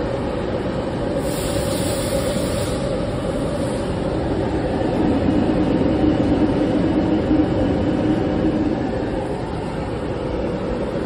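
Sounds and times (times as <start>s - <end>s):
low blower hum: 2.7s - 11.0s.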